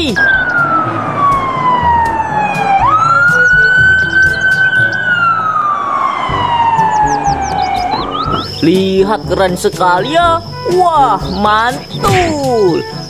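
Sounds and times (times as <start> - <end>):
police siren wailing: 0.0 - 8.6
low music beat: 0.1 - 5.5.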